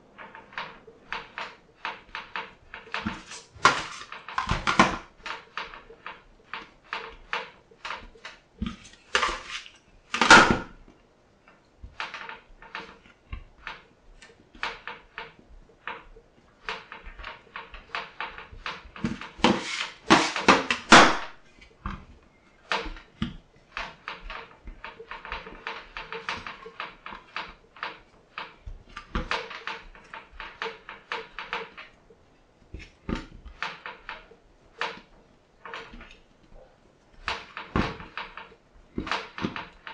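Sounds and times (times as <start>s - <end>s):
bench scraper scraping steel: 8.7s - 10.7s, 18.9s - 21.2s.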